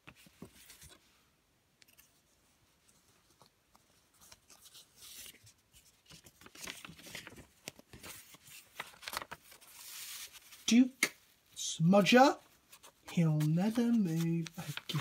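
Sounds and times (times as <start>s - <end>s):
paper leaflet rustling: 0.0s - 1.0s, 2.8s - 11.3s, 12.0s - 15.0s.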